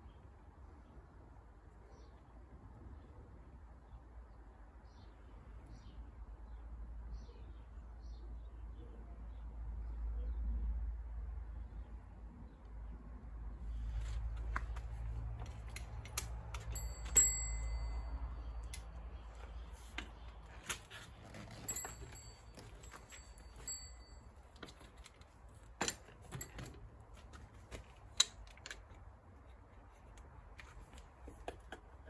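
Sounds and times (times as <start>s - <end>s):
folding bike hinges clicking: 14.4s - 18.0s
metal part ringing: 15.4s - 19.0s, 21.4s - 25.1s.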